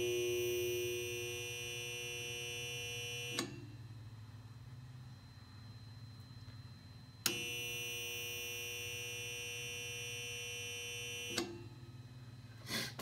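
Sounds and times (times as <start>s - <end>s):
blade welder electric buzz: 0.0s - 3.6s, 7.2s - 11.7s.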